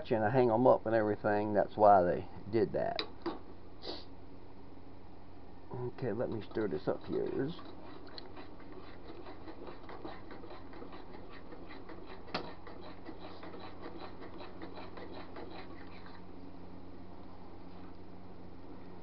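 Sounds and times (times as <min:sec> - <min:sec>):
utensil scraping metal pot: 0:06.0 - 0:16.2.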